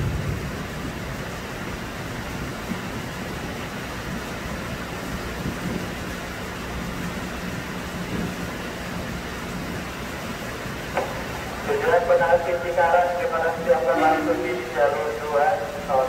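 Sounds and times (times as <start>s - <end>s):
electric train hum: 0.0s - 16.0s
heavy rain hissing: 0.0s - 16.0s.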